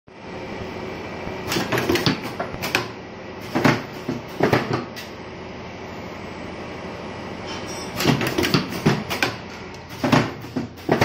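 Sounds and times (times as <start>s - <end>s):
steady machine hum: 0.1s - 11.0s
pneumatic actuators clacking: 7.5s - 11.0s.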